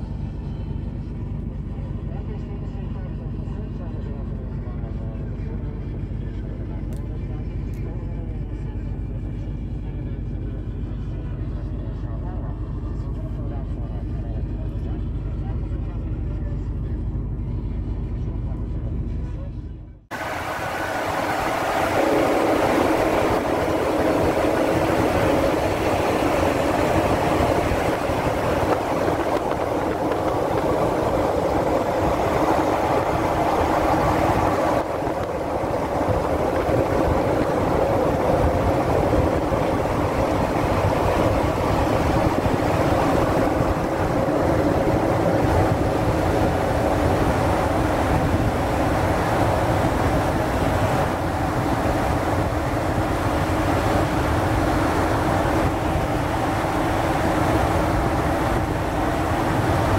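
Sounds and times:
truck engine at speed: 0.0s - 59.9s
wind noise: 20.1s - 59.9s.

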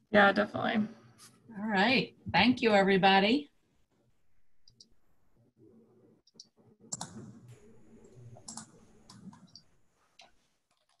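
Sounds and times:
faint low hum: 3.4s - 10.3s.

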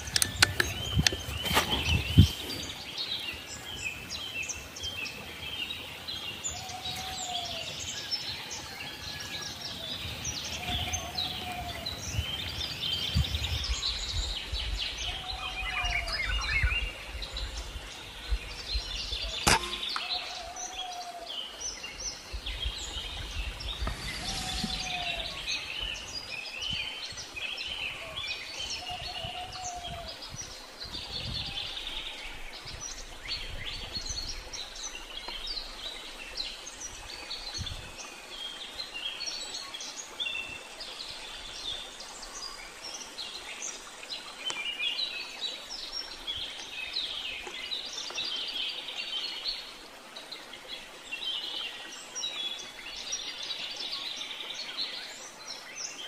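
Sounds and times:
birds chirping and singing: 0.0s - 35.5s
sharp crack: 19.4s - 20.2s
low arched bird call: 23.7s - 26.2s.

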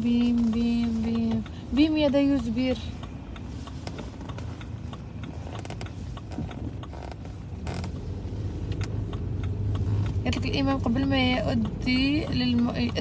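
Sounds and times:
car cabin rumble: 0.0s - 13.0s
small creaks and clicks: 2.9s - 13.0s.

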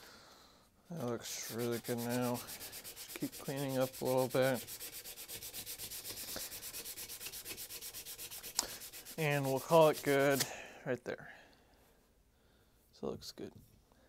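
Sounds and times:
sandpaper rasping on steel: 1.2s - 10.5s.

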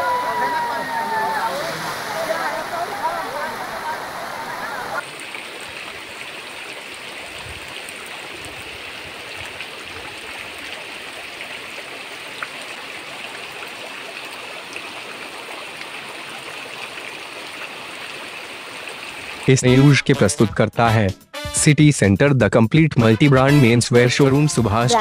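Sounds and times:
floodwater rushing: 0.0s - 19.6s.

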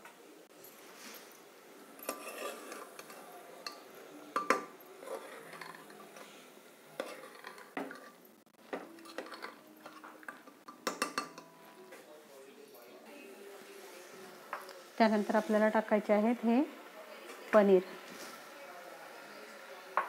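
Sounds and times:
metal ladle clinking and scraping pot: 2.0s - 3.8s, 4.4s - 6.3s, 7.0s - 8.2s, 8.8s - 11.5s.

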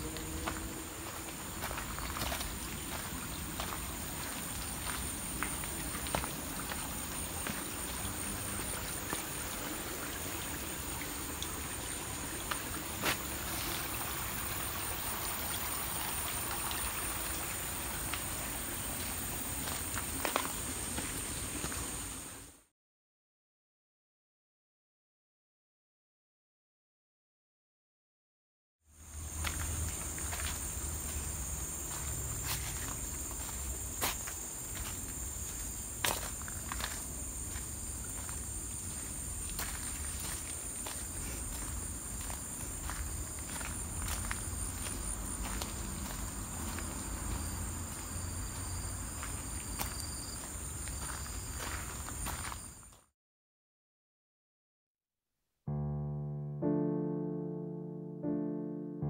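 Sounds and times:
footsteps on gravel: 0.0s - 8.1s, 12.5s - 13.9s, 29.2s - 52.6s
high-pitched insect drone: 0.0s - 9.2s, 29.0s - 52.7s
trickling stream water: 0.0s - 22.7s, 28.9s - 53.0s.

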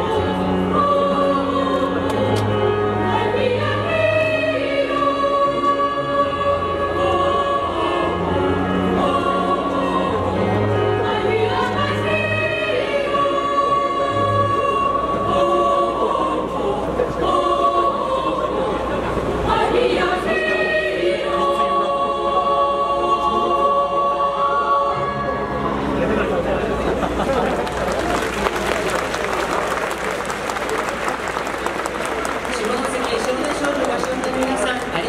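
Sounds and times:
children's choir singing: 0.0s - 26.3s.

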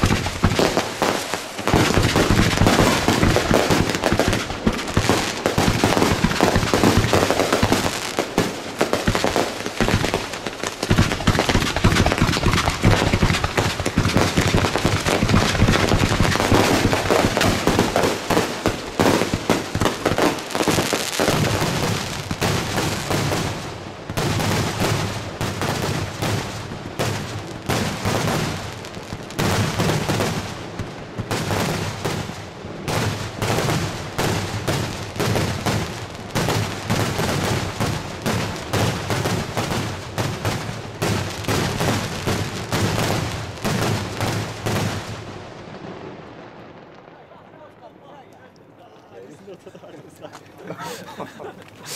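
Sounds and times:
crackling firework bursts: 0.0s - 48.7s
firework launch thumps: 10.9s - 17.6s.

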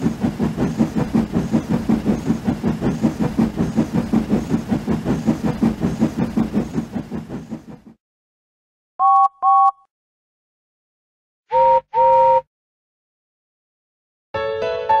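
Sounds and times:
steam train rhythmic beat: 0.0s - 7.8s.

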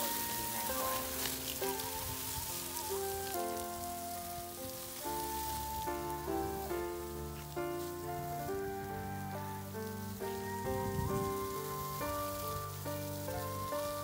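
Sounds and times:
background music: 0.0s - 14.0s
hose water spraying: 0.0s - 14.0s.

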